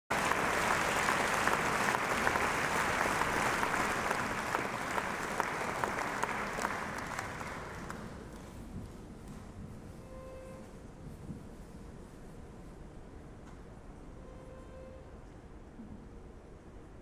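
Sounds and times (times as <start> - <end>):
audience applauding: 0.1 - 8.5.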